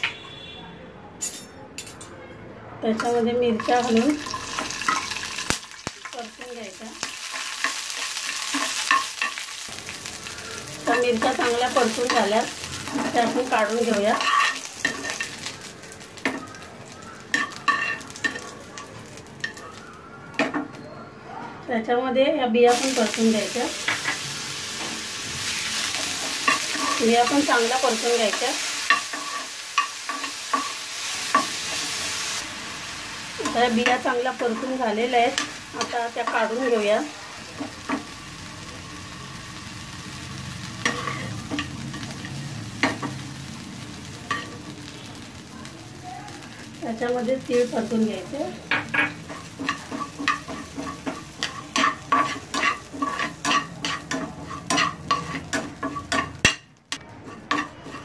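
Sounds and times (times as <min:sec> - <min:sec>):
chillies sizzling in oil: 0:02.8 - 0:20.8, 0:22.6 - 0:58.0
metal spatula scraping pan: 0:10.8 - 0:15.5, 0:24.8 - 0:31.9, 0:40.8 - 0:43.2, 0:48.7 - 0:58.0.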